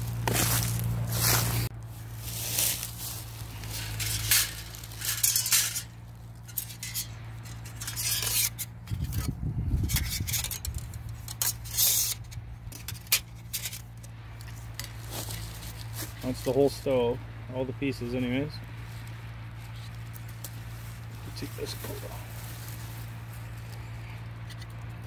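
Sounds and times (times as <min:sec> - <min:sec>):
steady low hum: 0:00.0 - 0:25.0
metal plates clinking and scraping: 0:03.4 - 0:14.0.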